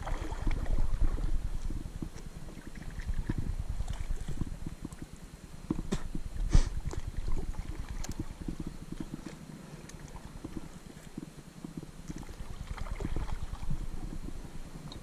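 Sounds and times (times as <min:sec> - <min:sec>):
paddle splashes: 0:00.0 - 0:04.4, 0:05.8 - 0:11.2, 0:12.0 - 0:14.2
water swishing: 0:00.0 - 0:05.2, 0:05.8 - 0:15.0.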